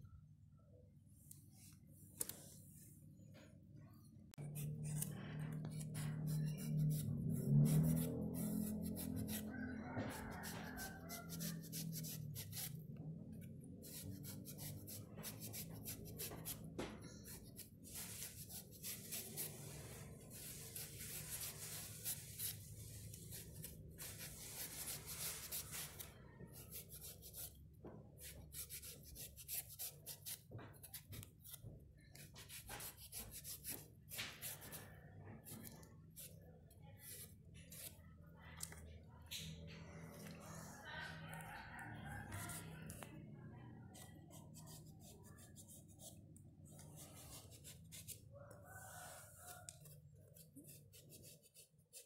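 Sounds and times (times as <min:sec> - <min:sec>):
knife scraping eggplant skin: 0:04.4 - 0:09.5, 0:10.1 - 0:27.6, 0:28.2 - 0:38.0, 0:43.9 - 0:48.3, 0:49.7 - 0:52.0.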